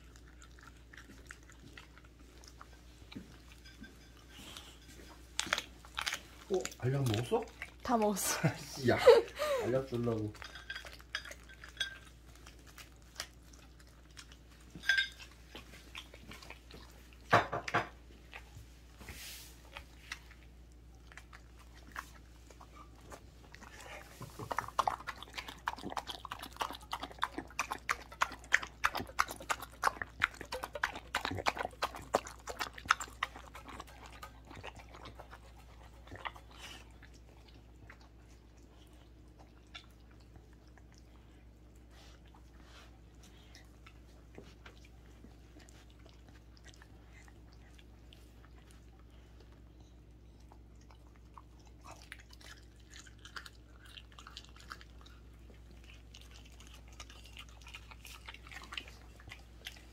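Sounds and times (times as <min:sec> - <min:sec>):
dog chewing: 0:00.0 - 0:59.9
dog licking metal bowl: 0:23.7 - 0:38.1.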